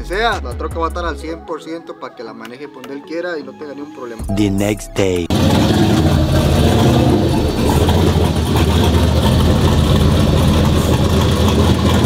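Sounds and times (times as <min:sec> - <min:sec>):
pickup truck engine running: 0:05.3 - 0:12.0.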